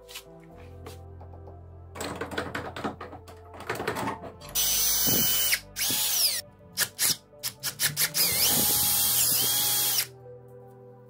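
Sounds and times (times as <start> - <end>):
power drill boring through plastic: 4.5 - 6.4, 7.0 - 10.1.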